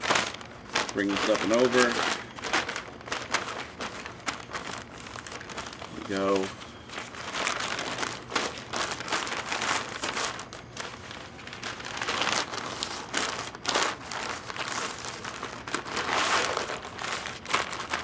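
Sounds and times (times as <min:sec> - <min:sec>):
paper crinkling and rustling: 0:00.0 - 0:18.0.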